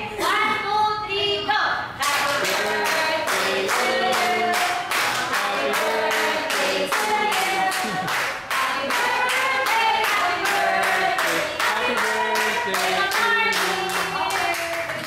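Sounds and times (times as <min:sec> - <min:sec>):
group singing: 0:02.0 - 0:14.3
people clapping: 0:02.0 - 0:15.0.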